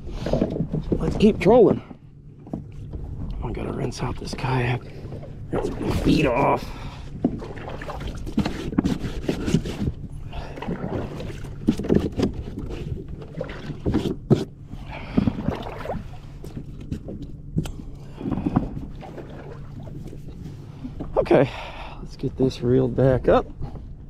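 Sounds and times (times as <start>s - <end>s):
water splashing in a kayak: 3.9s - 21.2s.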